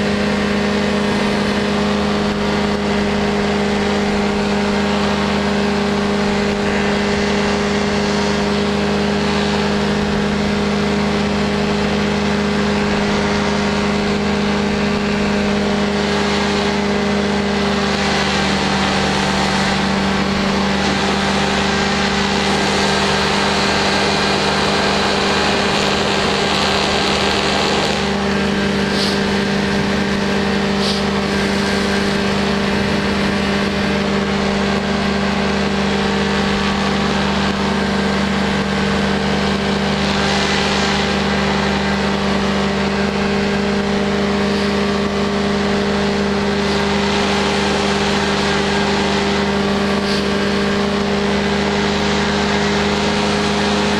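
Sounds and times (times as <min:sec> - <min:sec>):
aircraft engine and propeller drone: 0:00.0 - 0:53.9
rushing air hiss: 0:17.6 - 0:35.0, 0:44.4 - 0:44.8, 0:46.4 - 0:51.0.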